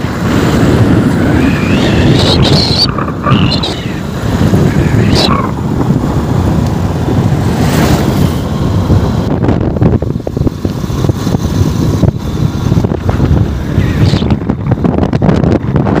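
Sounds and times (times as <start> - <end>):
motorcycle engine rumble: 0.0 - 16.0
wind buffeting microphone: 0.0 - 16.0.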